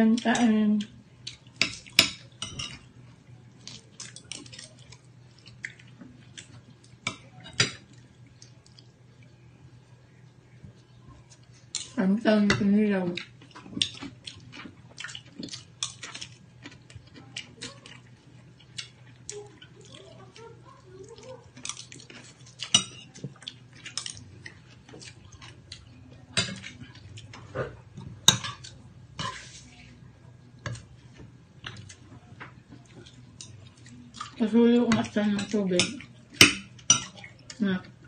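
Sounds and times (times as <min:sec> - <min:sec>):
chewing and mouth sounds: 0:03.6 - 0:07.2, 0:07.8 - 0:09.3, 0:13.2 - 0:28.8, 0:31.6 - 0:34.4.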